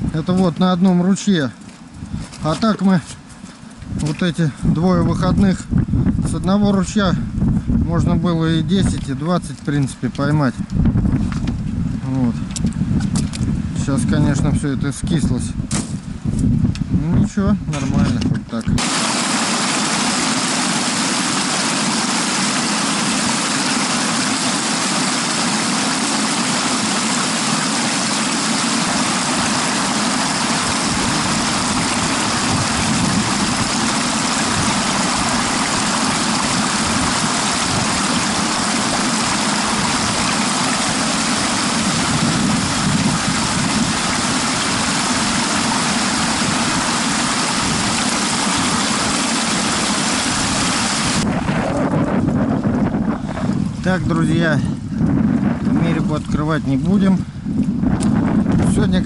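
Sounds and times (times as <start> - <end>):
steady rushing noise: 18.8 - 56.8.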